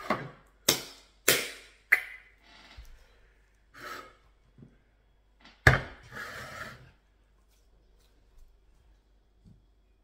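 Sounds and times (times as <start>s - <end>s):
utensil scraping a bowl: 6.0s - 7.0s.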